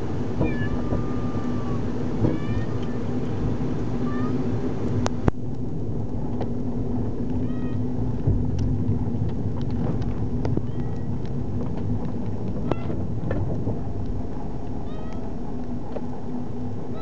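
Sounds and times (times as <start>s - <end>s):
car driving rumble inside cabin: 0.0s - 17.0s
cat meowing: 0.4s - 3.0s, 4.0s - 4.4s, 10.6s - 11.1s, 14.8s - 15.3s.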